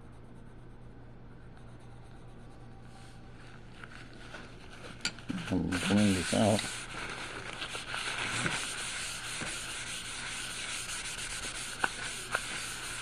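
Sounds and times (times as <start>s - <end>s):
paper rubbing on drawing: 4.6s - 13.0s.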